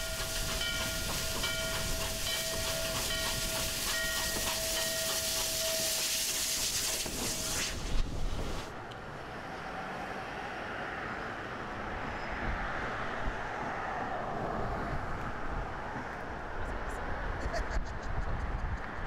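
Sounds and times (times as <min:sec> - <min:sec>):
distant steam locomotive rumble: 0:00.0 - 0:08.7.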